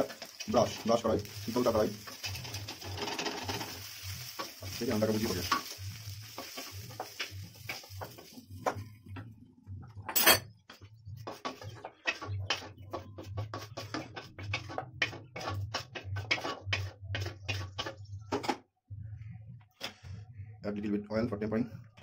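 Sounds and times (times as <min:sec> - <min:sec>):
wooden spatula scraping metal pan: 0:00.0 - 0:08.4, 0:11.2 - 0:18.0.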